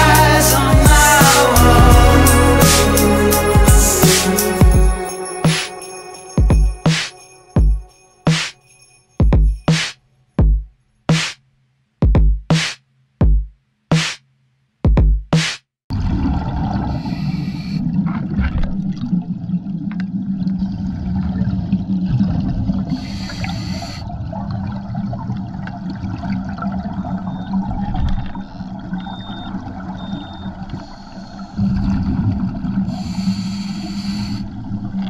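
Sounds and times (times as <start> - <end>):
exhaled air bubbling: 15.9 - 35.0
regulator air hissing: 32.9 - 34.4.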